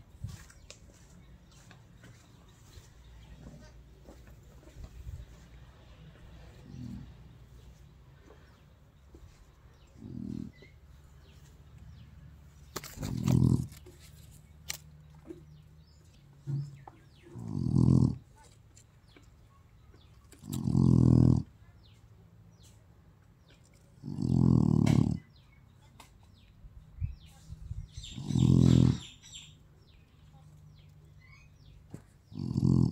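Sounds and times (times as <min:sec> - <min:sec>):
dog growling: 0:06.5 - 0:07.3, 0:09.8 - 0:10.8, 0:12.8 - 0:13.9, 0:17.2 - 0:18.3, 0:20.4 - 0:21.6, 0:24.0 - 0:25.4, 0:28.0 - 0:29.2, 0:32.3 - 0:32.9.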